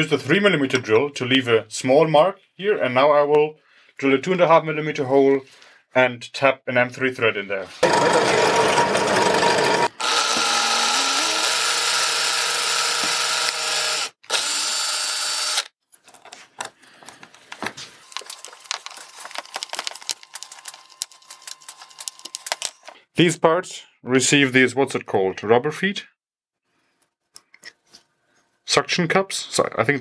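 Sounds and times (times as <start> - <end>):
power drill running: 7.8 - 15.8.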